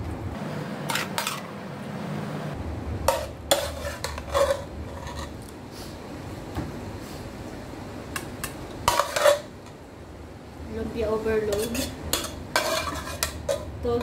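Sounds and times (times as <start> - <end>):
spoon scraping metal bowl: 3.1 - 5.4, 8.9 - 9.5, 11.5 - 13.7.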